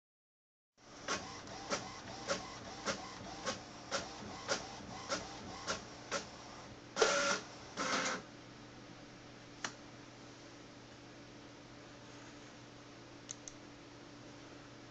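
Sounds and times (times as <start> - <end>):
printer whirring: 0.8 - 8.3
printer clicking: 1.1 - 6.4.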